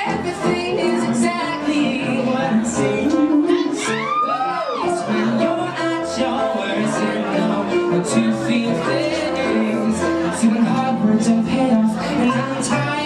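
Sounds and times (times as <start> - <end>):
piano accompaniment: 0.0 - 13.0
man singing ballad: 4.9 - 13.0.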